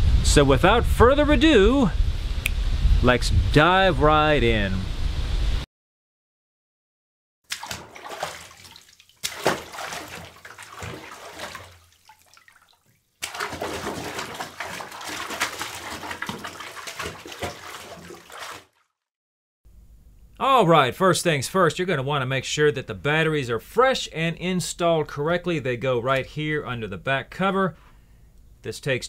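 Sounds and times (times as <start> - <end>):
water sloshing in a bathtub: 7.5 - 18.9.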